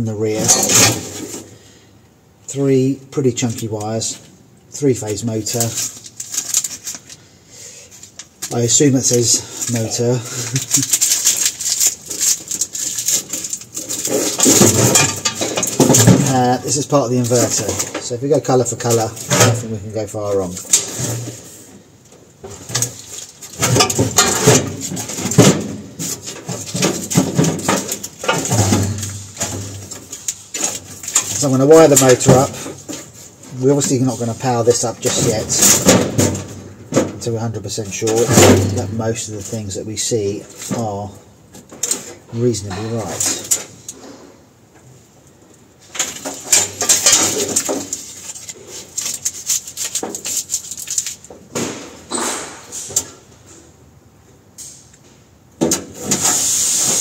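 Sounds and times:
wires and conduit rustling: 0.0 - 53.8.

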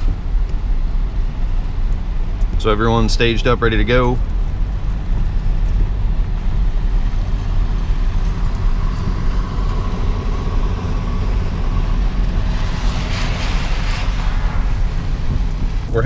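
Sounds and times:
car road noise rumble: 0.0 - 16.0
hiss: 12.5 - 15.1.

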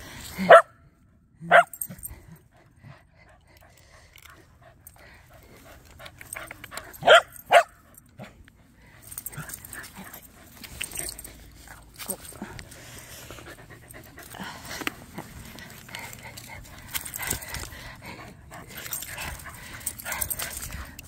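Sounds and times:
dog barking: 0.4 - 0.7, 1.5 - 1.8, 7.0 - 7.8.

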